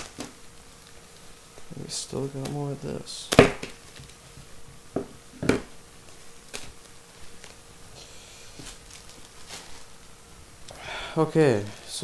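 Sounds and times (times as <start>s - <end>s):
plastic bag crinkling: 0.0s - 2.6s, 6.0s - 10.2s.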